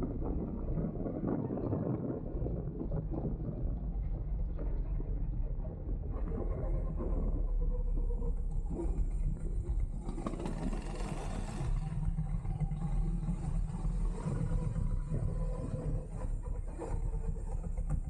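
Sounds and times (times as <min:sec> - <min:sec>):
wind buffeting microphone: 0:00.0 - 0:07.6
go-kart engine rumble: 0:00.0 - 0:18.0.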